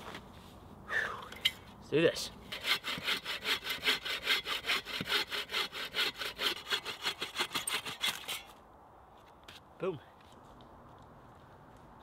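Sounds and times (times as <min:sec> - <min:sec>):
hand saw cutting through log: 0:02.5 - 0:08.5.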